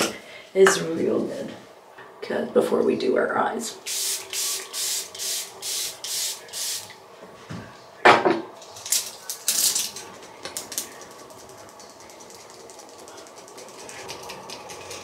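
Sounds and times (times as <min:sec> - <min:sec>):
spray bottle spritzing: 0:03.9 - 0:06.9.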